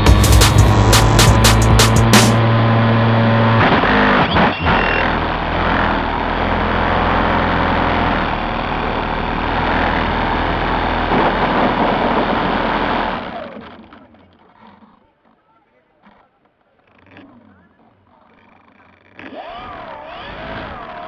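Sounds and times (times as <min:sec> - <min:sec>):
model plane motor droning: 0:02.4 - 0:14.2.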